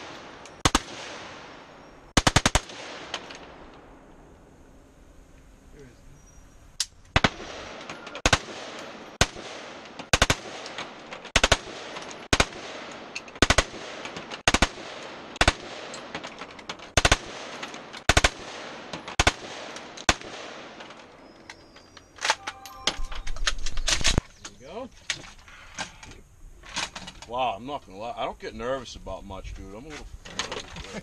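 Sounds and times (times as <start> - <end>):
automatic rifle bursts with echo: 2.2 - 3.5, 7.2 - 16.2.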